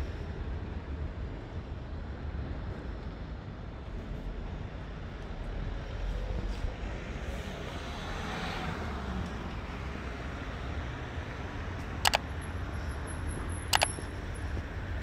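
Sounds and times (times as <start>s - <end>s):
city street traffic: 0.0s - 15.0s
sharp double clicks: 12.0s - 12.3s, 13.7s - 14.0s.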